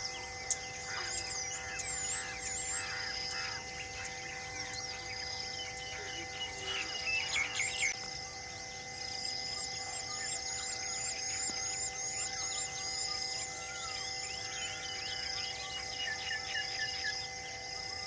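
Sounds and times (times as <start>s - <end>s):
birds chirping: 0.0s - 18.0s
steady low drone: 0.0s - 18.0s.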